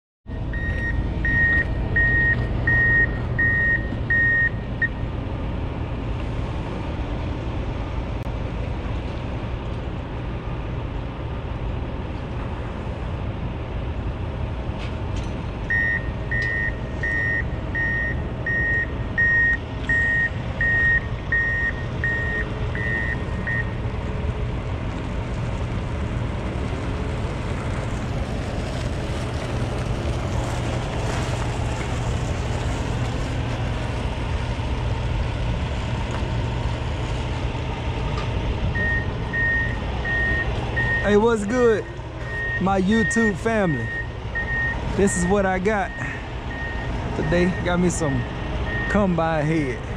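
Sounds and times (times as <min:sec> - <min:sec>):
vehicle reverse alarm beeping: 0:00.3 - 0:05.1, 0:15.6 - 0:23.8, 0:38.7 - 0:49.1
steady low rumble: 0:00.3 - 0:49.9.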